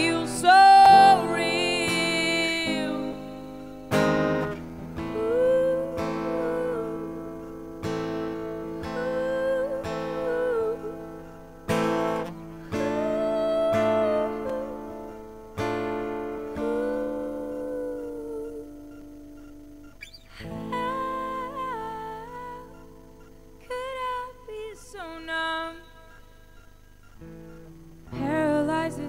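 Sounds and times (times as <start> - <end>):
woman singing wordless vocal: 0.0 - 3.8, 5.0 - 7.7, 8.4 - 11.4, 12.7 - 15.3, 16.2 - 19.0, 20.2 - 22.9, 23.5 - 26.2, 28.1 - 29.0
acoustic guitar strumming slow chords: 0.0 - 29.0.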